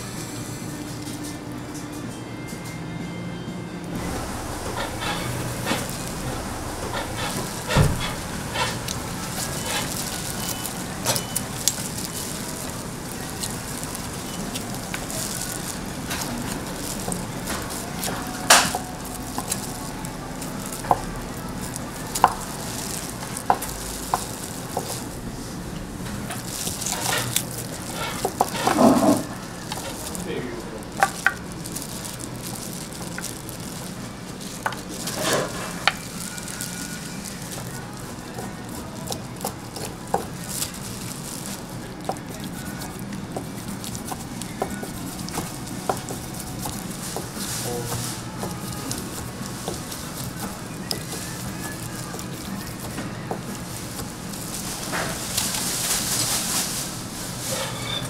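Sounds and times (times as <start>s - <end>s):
food sizzling: 3.9s - 58.0s
utensils clattering: 3.9s - 58.0s
kitchen utensils clicking and knocking: 4.4s - 25.2s, 26.1s - 30.2s.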